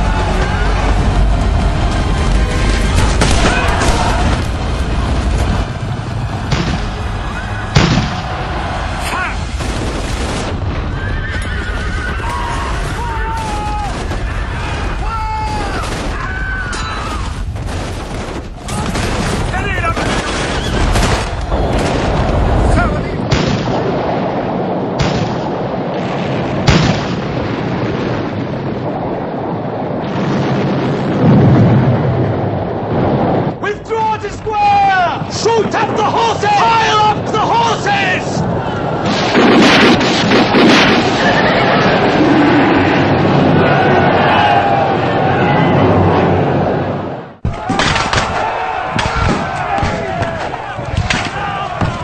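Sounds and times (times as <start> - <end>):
musket shots and booms: 0.0 - 33.6, 38.4 - 44.3, 47.4 - 52.0
deep rumble: 0.0 - 33.7, 38.3 - 47.7
noisy din of battle: 0.0 - 52.0
gunshot: 2.9 - 4.5, 7.8 - 8.3, 23.3 - 24.0, 25.0 - 25.6, 26.6 - 27.4, 39.0 - 41.5, 47.4 - 52.0.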